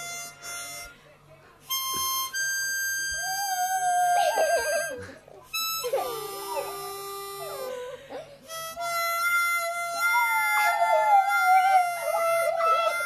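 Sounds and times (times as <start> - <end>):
harmonica long notes: 0.0 - 1.0, 1.7 - 13.0
puppy howling: 3.1 - 5.1, 5.8 - 8.3, 9.7 - 13.0.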